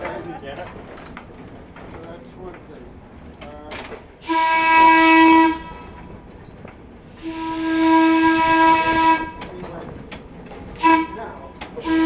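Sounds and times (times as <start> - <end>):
trolley air whistle blasts: 7.2 - 9.4, 11.8 - 12.0.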